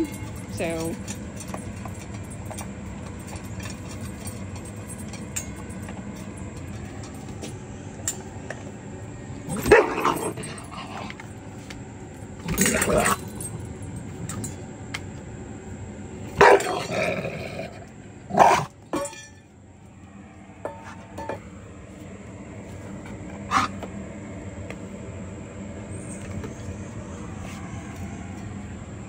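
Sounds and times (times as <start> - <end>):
dog barking and growling: 9.5 - 11.2, 12.4 - 13.6, 16.4 - 18.8, 23.5 - 23.8.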